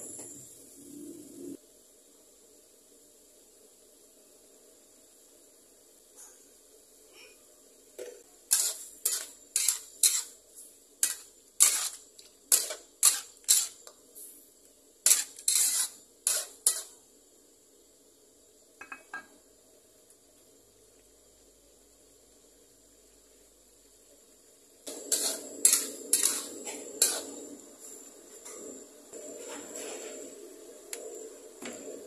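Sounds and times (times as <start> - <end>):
metal spatula scraping a wok: 8.4 - 14.4, 15.0 - 17.1, 24.9 - 28.6, 29.2 - 30.4.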